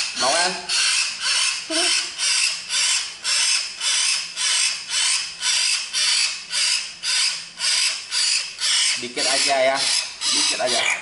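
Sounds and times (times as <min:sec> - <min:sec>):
bird rasping begging calls: 0:00.0 - 0:11.0.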